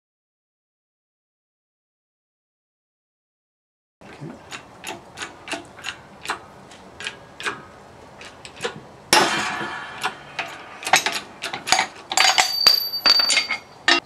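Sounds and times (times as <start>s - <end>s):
sharp metallic clicks: 4.5s - 7.6s, 8.2s - 14.0s
loud metal crack ringing: 9.1s - 14.0s.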